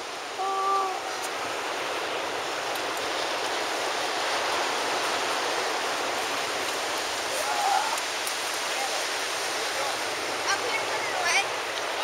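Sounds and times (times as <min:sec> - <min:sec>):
surf rushing along shoreline: 0:00.0 - 0:12.0.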